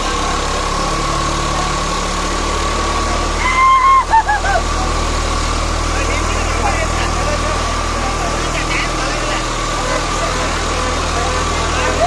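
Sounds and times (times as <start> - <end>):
tractor engine drone: 0.0 - 12.0.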